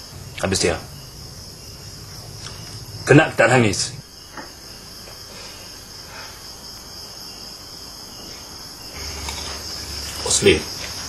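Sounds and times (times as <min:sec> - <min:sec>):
low hum: 0:00.0 - 0:04.9
insects chirping: 0:00.0 - 0:11.0.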